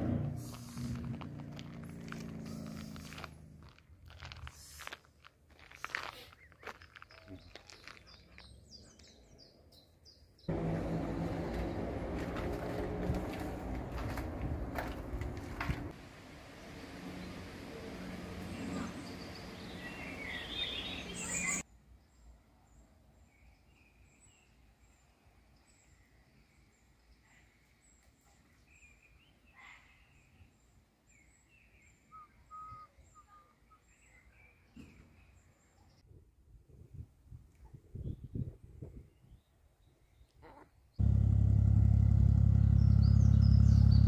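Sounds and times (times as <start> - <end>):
songbirds chirping and singing: 5.6 - 10.6, 18.4 - 21.6.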